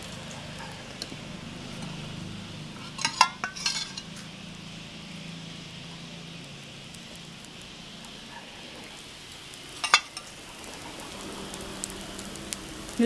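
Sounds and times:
batter sizzling on hot pan: 0.0 - 13.0
steel spoon clinking on pan: 2.9 - 4.1, 9.8 - 10.3.

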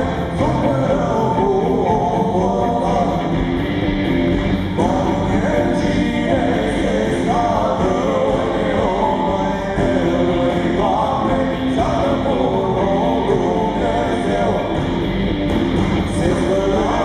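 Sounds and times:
man singing: 0.0 - 3.6, 4.7 - 15.0, 15.8 - 17.0
rock band playing: 0.0 - 17.0.

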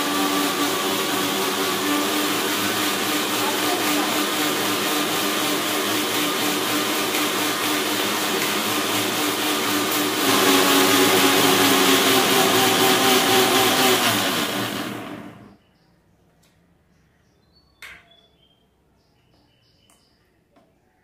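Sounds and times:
mixer grinder running: 0.0 - 15.5.

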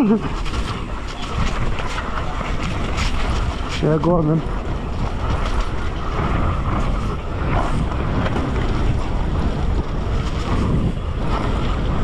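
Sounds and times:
bike frame rattling: 0.0 - 12.0
bike tyres rolling over dirt: 0.0 - 12.0
wind buffeting microphone: 0.0 - 12.0.

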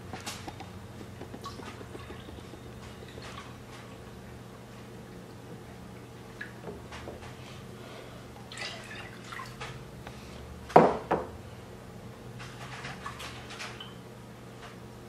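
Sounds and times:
milk pouring and trickling: 1.2 - 4.2, 8.4 - 9.7.

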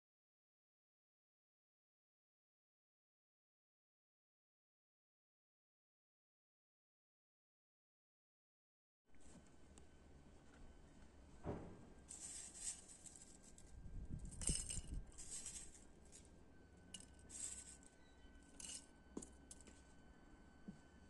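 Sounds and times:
dried flowers rustling as poured: 12.0 - 13.8, 14.4 - 16.2, 17.3 - 17.8.

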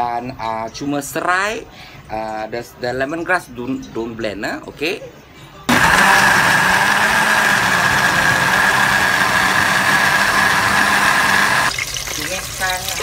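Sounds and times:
blender running: 5.7 - 11.7.

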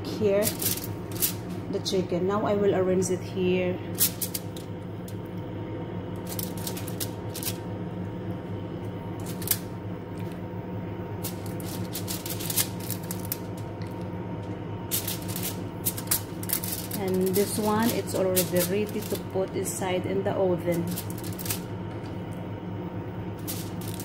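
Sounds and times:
aluminium foil crinkling: 0.0 - 1.6, 3.9 - 5.2, 6.2 - 7.7, 9.2 - 10.4, 11.2 - 14.1, 14.9 - 22.2, 23.4 - 24.0.

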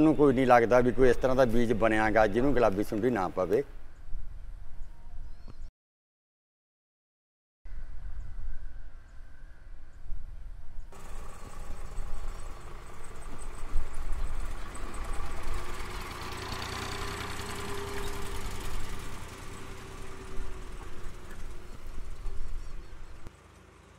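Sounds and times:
tractor diesel engine under load: 10.9 - 23.9.

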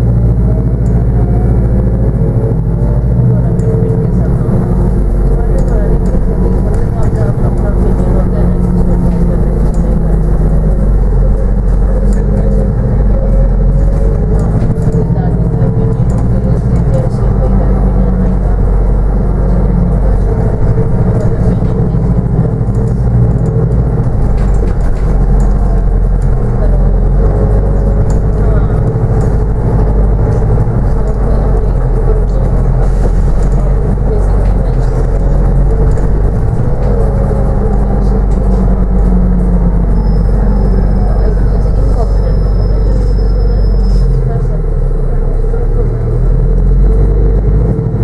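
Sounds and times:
bus engine drone: 0.0 - 48.0
road rumble: 0.0 - 48.0.

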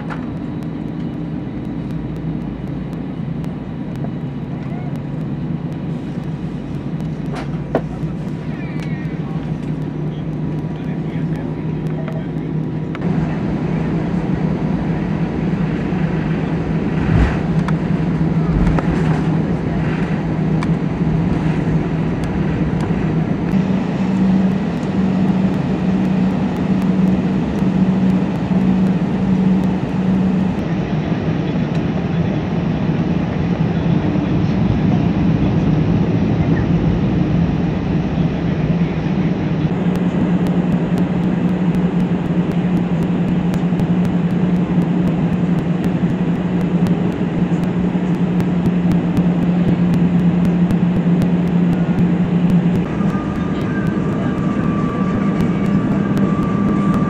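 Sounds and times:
jet engines droning: 0.0 - 57.0
wheels rumbling: 0.0 - 57.0.

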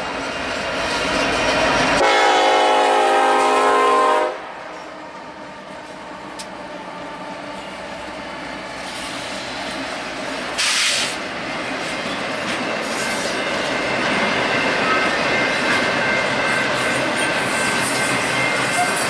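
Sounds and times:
freight train approaching: 0.0 - 19.0
steel wheels squealing on rails: 7.1 - 19.0
sharp hiss: 10.6 - 11.2.

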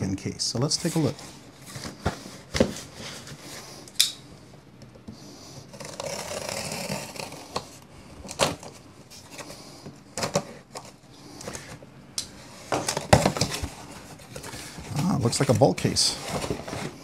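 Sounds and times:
knife cutting packing tape: 5.7 - 7.6.

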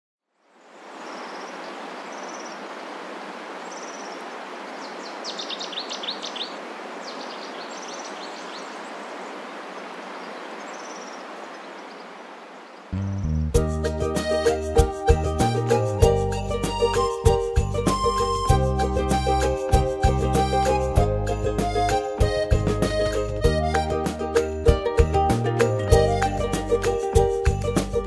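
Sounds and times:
outdoor background hiss: 0.2 - 28.0
birds chirping: 0.6 - 13.6.

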